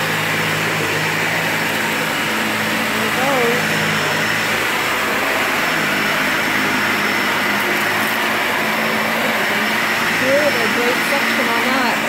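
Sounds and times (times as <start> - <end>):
vacuum cleaner on carpet: 0.0 - 12.0.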